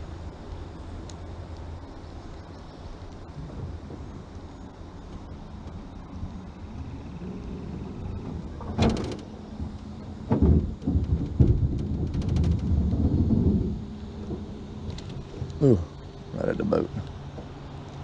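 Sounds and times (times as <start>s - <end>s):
low rumbling thumps: 3.3s - 17.6s.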